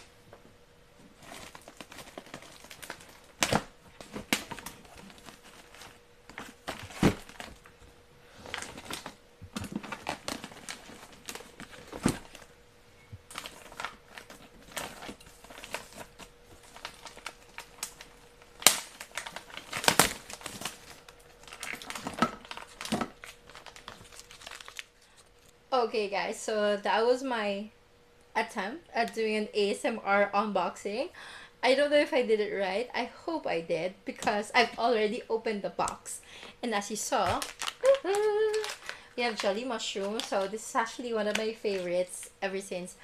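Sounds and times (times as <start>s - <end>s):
faint steady hum: 0.0s - 43.0s
plastic wrapping crinkling: 1.0s - 12.6s, 13.2s - 25.6s, 35.8s - 42.4s.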